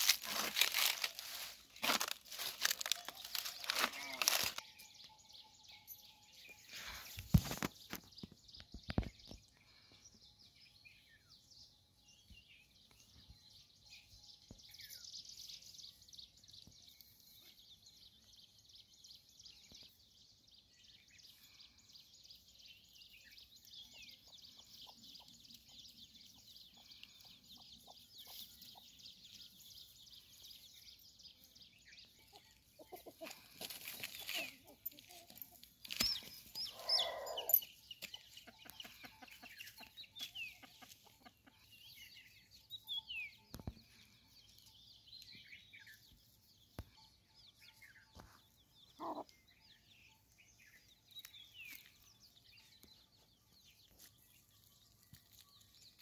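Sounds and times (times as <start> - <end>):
chickens clucking: 32.0 - 42.5, 48.2 - 49.4.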